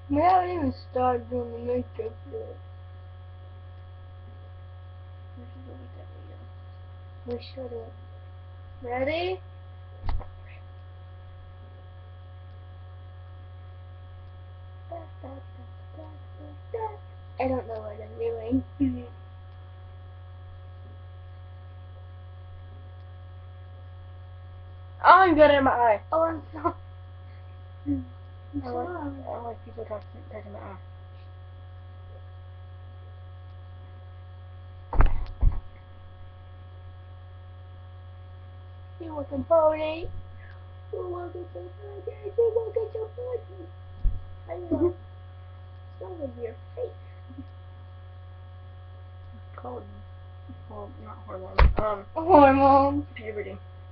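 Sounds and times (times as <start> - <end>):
electrical mains hum: 0.0 - 53.9
loud thumps: 10.0 - 10.5, 34.9 - 35.8, 51.6 - 52.0
faint talk: 14.9 - 19.2, 27.9 - 30.8, 40.9 - 43.7
sharp knock: 35.0 - 35.7, 51.6 - 51.9.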